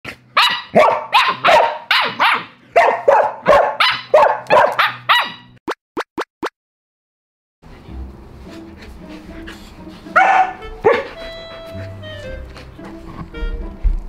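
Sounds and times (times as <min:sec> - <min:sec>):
dog barking loudly: 0:00.3 - 0:05.5, 0:10.2 - 0:11.2.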